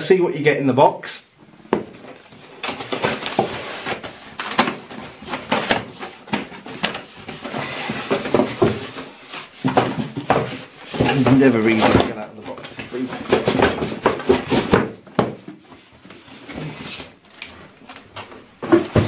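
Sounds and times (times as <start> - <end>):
cardboard scraping and rubbing: 2.0 - 15.0, 15.8 - 17.2.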